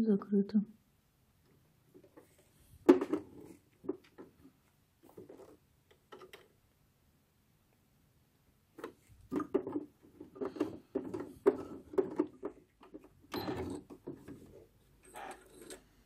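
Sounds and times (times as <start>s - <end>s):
sewing machine stitching: 13.3s - 14.4s.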